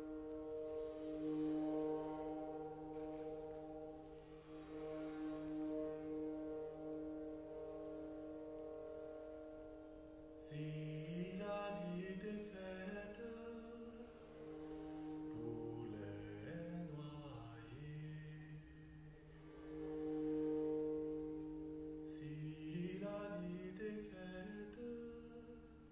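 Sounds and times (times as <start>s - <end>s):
low sliding pitches: 0.0s - 10.3s
bowed cymbal drone: 0.0s - 25.4s.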